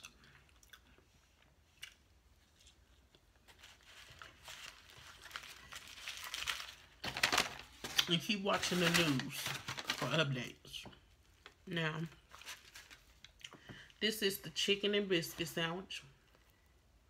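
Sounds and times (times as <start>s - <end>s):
foil wrapper crinkling: 2.5s - 13.4s.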